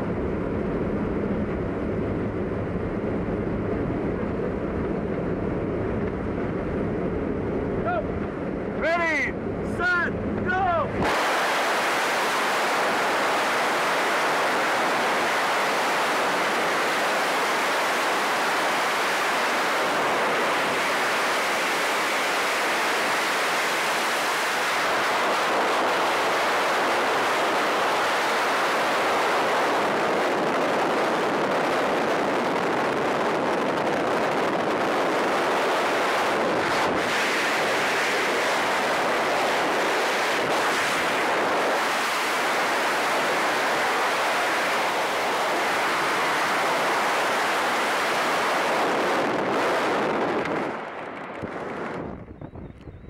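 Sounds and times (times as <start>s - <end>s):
wind blasting on microphone: 0.0s - 53.0s.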